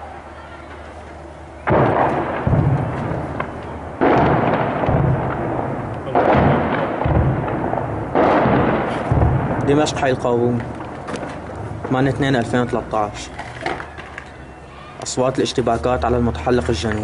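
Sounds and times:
heavy explosion booms echoing: 1.6 - 12.7.

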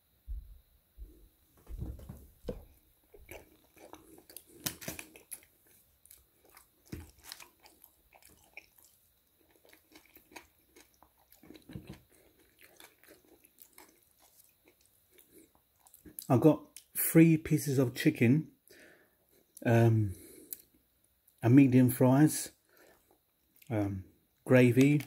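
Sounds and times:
person chewing: 2.5 - 16.9.

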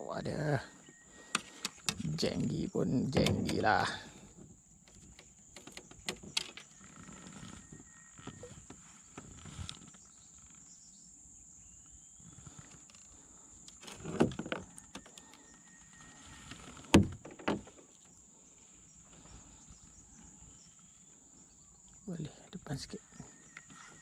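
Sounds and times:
knocks and rustles: 16.1 - 18.1.

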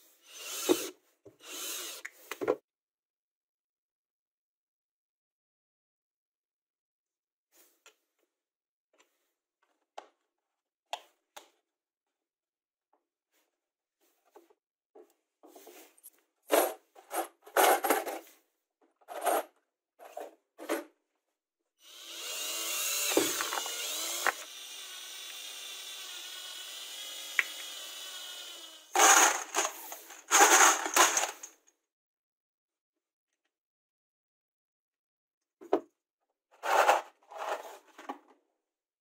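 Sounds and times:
power drill boring plastic: 0.2 - 2.1, 21.8 - 31.6
screws clattering into plastic bin: 16.6 - 18.3, 29.0 - 31.6.

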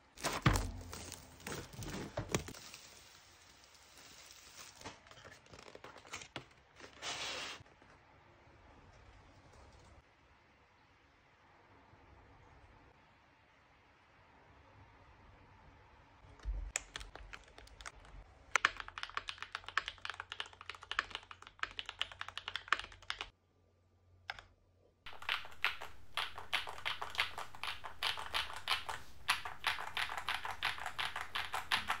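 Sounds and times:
mechanical keyboard typing: 16.7 - 23.3, 25.1 - 32.0.

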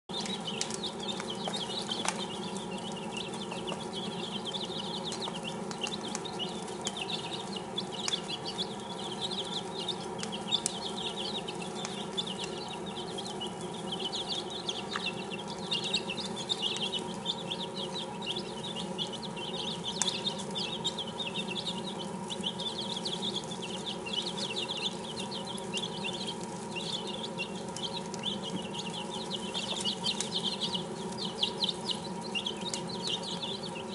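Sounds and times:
chicks peeping: 0.0 - 33.9
sharp clicks: 0.1 - 18.8
steady low hum: 0.1 - 33.9.

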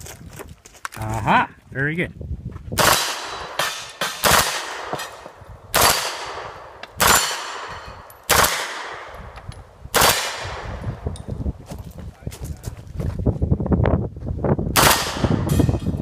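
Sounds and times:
gunshots with echo: 2.8 - 9.2, 9.9 - 11.0, 14.8 - 15.8.

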